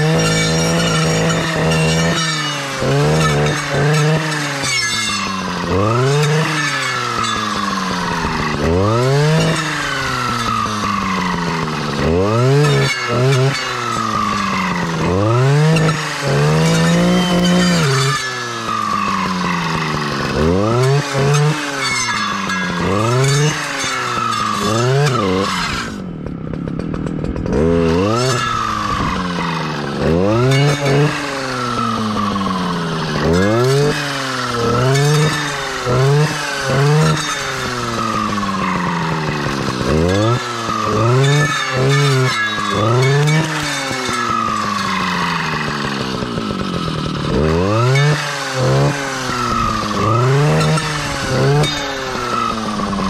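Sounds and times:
clearing saw engine revving: 0.0s - 53.0s.

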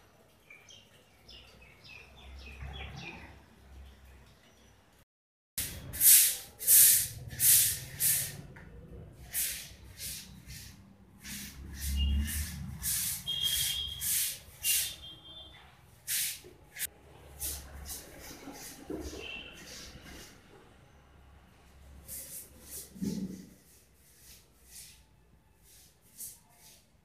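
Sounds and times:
hissing rubbing noises: 5.6s - 15.1s, 16.0s - 20.8s.

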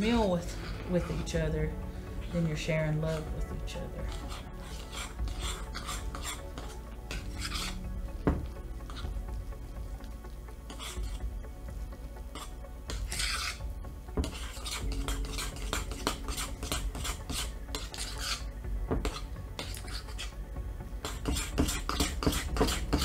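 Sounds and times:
spoon scraping bowl: 0.2s - 1.6s, 3.0s - 7.9s, 8.8s - 9.1s, 10.7s - 11.3s, 12.3s - 13.6s, 14.2s - 20.3s, 21.0s - 23.0s.

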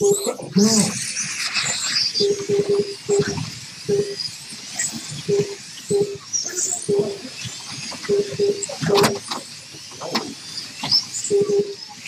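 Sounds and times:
slot car motors whining: 0.0s - 12.0s
short electronic beeps: 2.2s - 4.2s, 5.3s - 7.2s, 8.0s - 9.1s, 11.2s - 11.8s.

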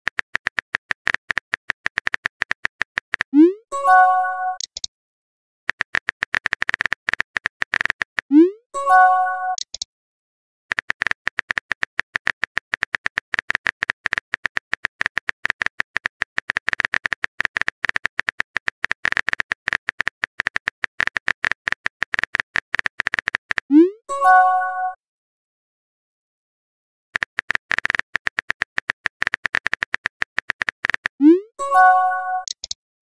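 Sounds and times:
phone keyboard typing clicks: 0.1s - 3.3s, 4.5s - 4.9s, 5.7s - 8.3s, 9.5s - 9.9s, 10.7s - 23.7s, 27.2s - 31.2s, 31.9s - 32.8s
message chime: 3.4s - 4.6s, 8.8s - 9.6s, 24.1s - 25.0s, 31.6s - 32.5s.

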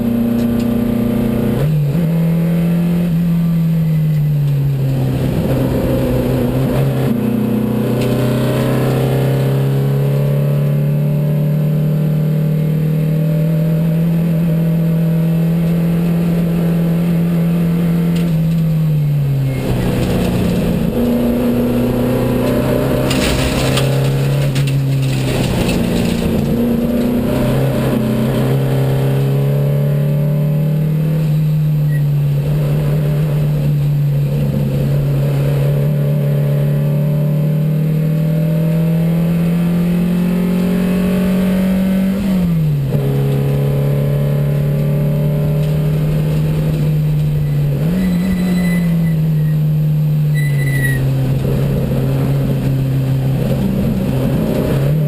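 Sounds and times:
race car engine running hard: 51.0s - 55.0s.

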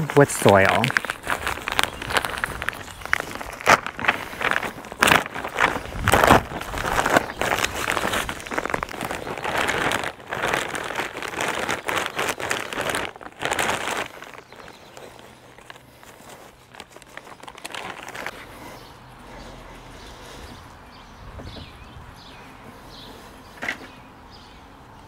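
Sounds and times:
plastic bag crinkling: 0.0s - 18.4s.

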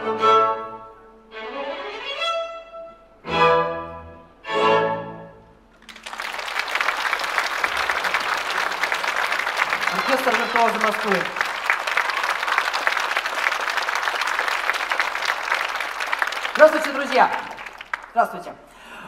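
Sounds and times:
chamber string orchestra chords: 0.0s - 5.7s
audience applause: 5.8s - 18.4s.

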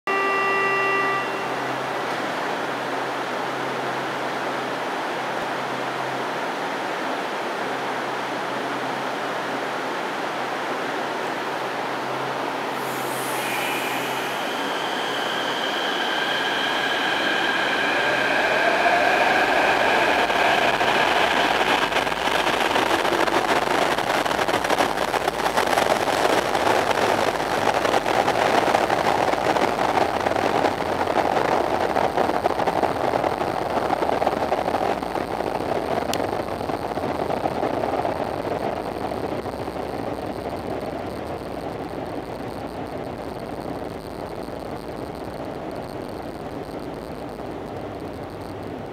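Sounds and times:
electric train whine: 0.0s - 48.9s
train cars rumbling: 12.4s - 36.0s.

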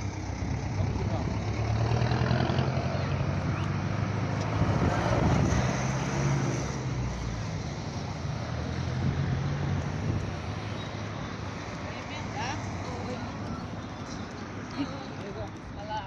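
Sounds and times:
wind on microphone: 4.5s - 6.8s, 8.9s - 10.6s.

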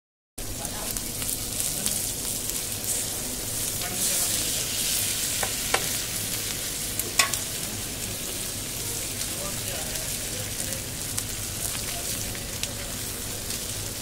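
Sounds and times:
cheese sizzling on griddle: 0.4s - 14.0s
metal spatula scraping griddle: 2.8s - 6.1s.

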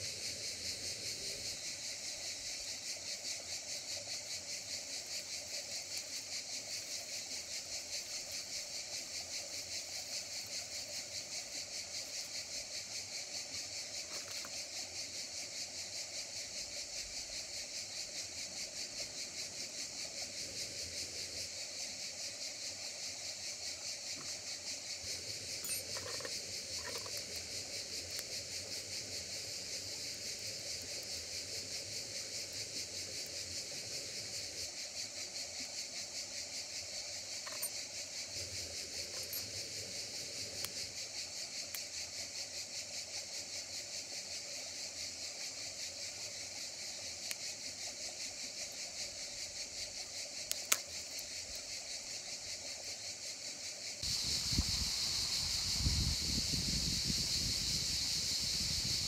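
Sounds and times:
insects chirring: 0.0s - 59.0s
faint clicks and knocks: 25.7s - 27.4s.

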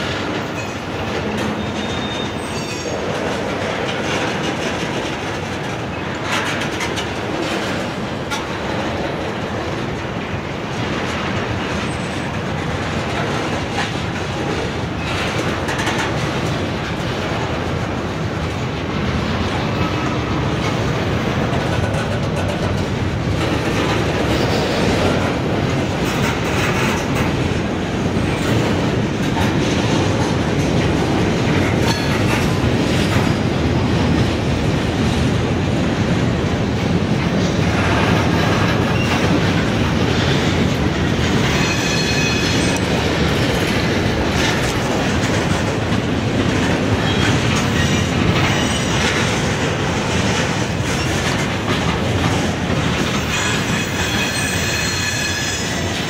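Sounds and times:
freight train rumbling: 0.0s - 56.0s
wheels clacking over rail joints: 0.0s - 56.0s
wheel squeal: 1.5s - 3.0s, 41.5s - 42.9s, 53.3s - 56.0s.

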